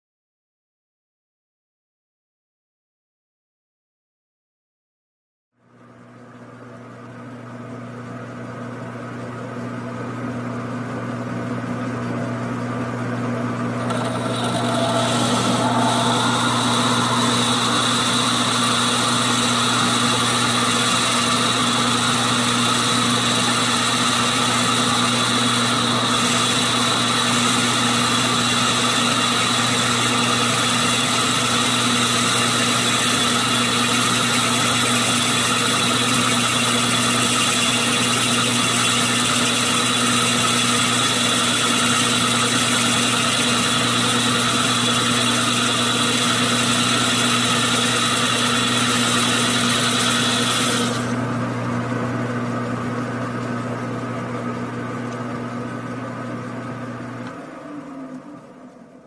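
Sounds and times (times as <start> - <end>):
metal lathe humming and whining: 13.6 - 55.1.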